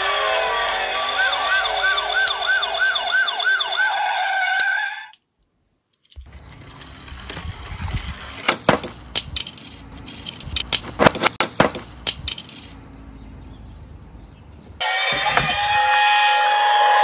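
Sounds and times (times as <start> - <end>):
toy car clattering down a slope: 6.0 - 12.8.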